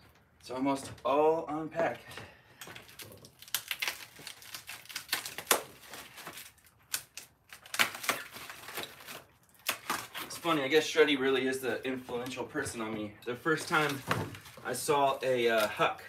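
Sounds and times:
packaging rustling and crinkling: 2.6 - 10.7, 13.4 - 15.9.

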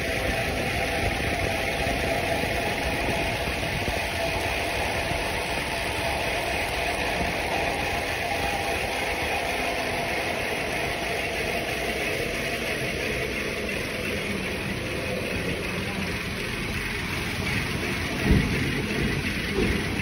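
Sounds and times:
wind on microphone: 0.0 - 10.8
bike tyres rolling on concrete: 0.0 - 20.0.

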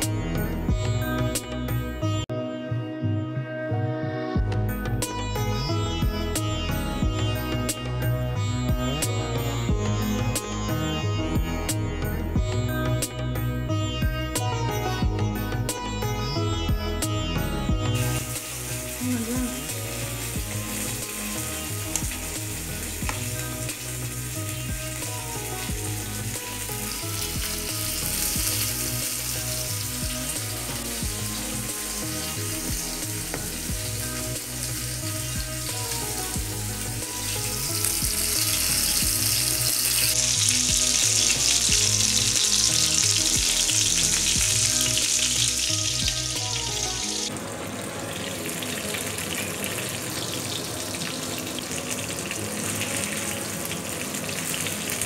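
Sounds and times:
background music with steady beat: 0.0 - 55.0
fish sizzling in oil: 18.0 - 55.0.

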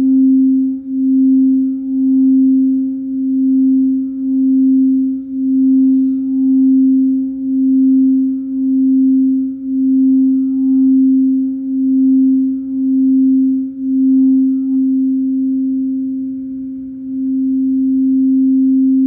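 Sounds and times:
singing bowl ringing: 0.0 - 19.0.

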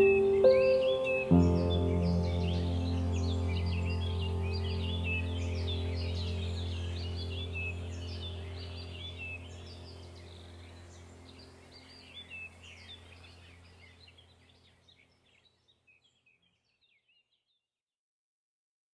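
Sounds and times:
low steady hum: 0.0 - 14.8
birds chirping: 0.0 - 17.3.

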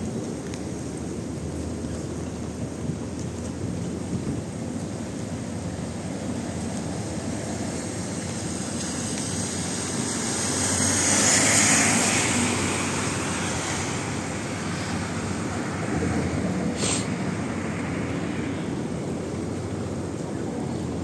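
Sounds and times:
fast-flowing floodwater: 0.0 - 21.0
rain: 0.0 - 21.0
loud hiss: 16.8 - 17.1.

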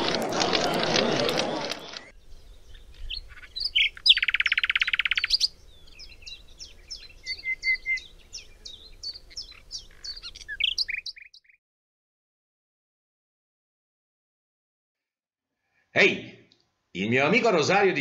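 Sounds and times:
songbirds chirping: 0.0 - 11.6
bird loud rapid trill: 3.2 - 5.5.

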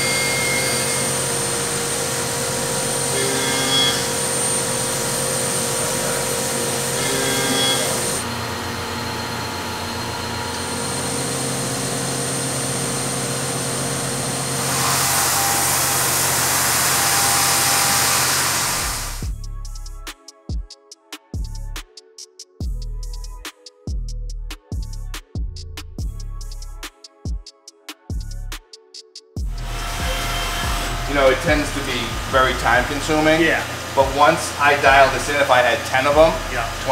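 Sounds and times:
high spindle whine: 0.0 - 19.3, 29.4 - 36.9
machine hum: 0.0 - 19.3, 29.4 - 36.9
loud hiss: 14.6 - 19.3.

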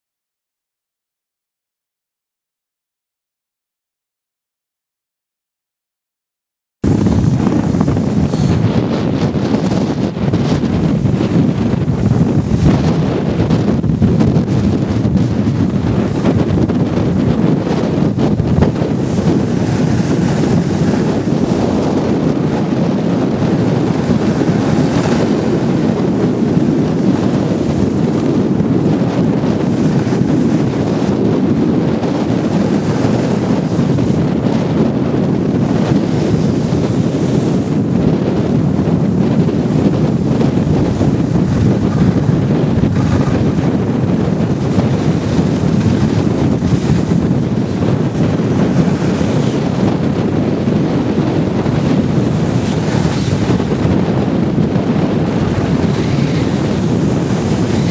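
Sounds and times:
wind buffeting microphone: 6.8 - 57.9.

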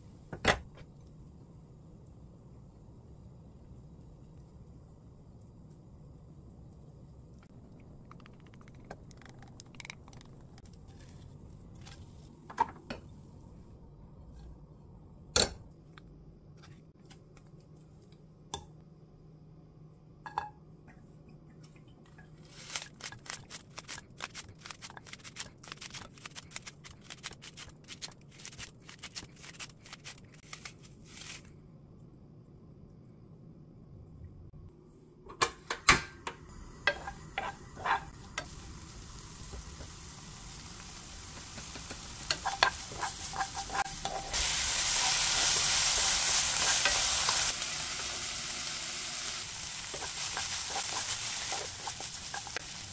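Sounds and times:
scissors cutting onion: 22.7 - 31.4.

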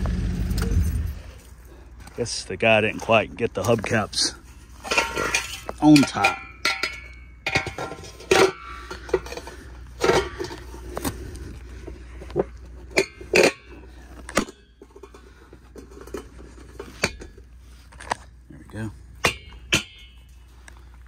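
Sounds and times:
metal hubcap clanking and scraping: 2.8 - 10.9, 12.8 - 18.1, 19.2 - 20.4.

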